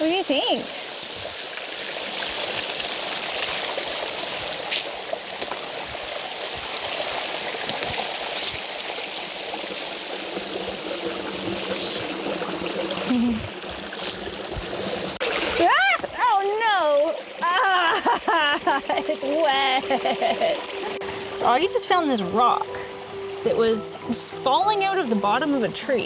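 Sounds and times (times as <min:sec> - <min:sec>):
water rushing over rocks: 0:00.0 - 0:18.2.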